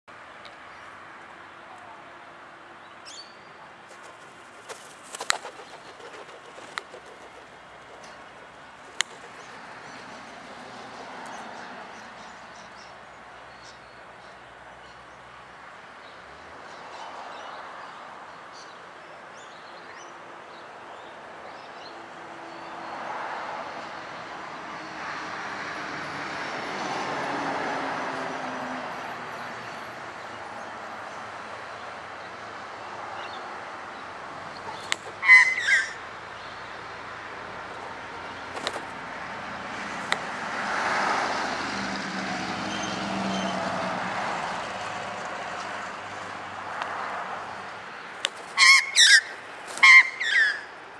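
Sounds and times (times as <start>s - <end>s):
steady rushing background: 3.9s - 11.0s
magpie bill clicking: 3.9s - 11.4s, 34.6s - 35.5s, 37.7s - 39.0s, 39.9s - 40.3s.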